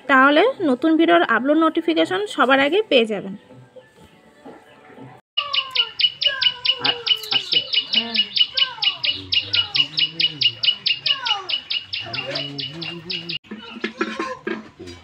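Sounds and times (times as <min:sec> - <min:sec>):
falling bird calls: 0:05.4 - 0:13.4
fast bird chirping: 0:05.4 - 0:13.4.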